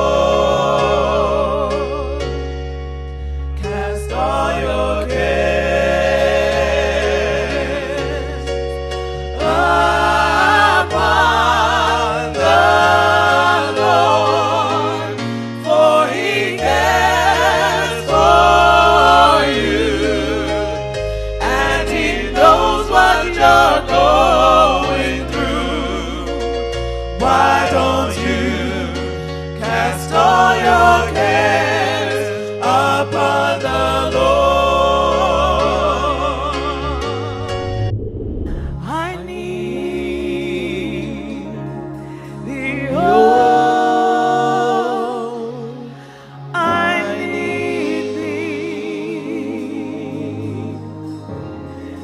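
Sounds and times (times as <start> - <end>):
gospel choir singing: 0.0 - 52.0
sustained low notes: 37.0 - 39.6.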